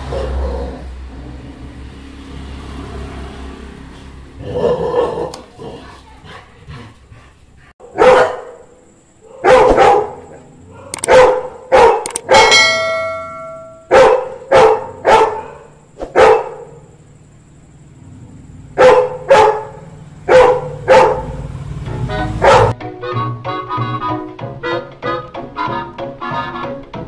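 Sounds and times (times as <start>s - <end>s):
dog barking: 0.0s - 0.8s, 4.5s - 5.4s, 7.8s - 16.9s, 18.7s - 21.4s, 22.4s - 22.8s
ringing tone: 12.3s - 13.9s.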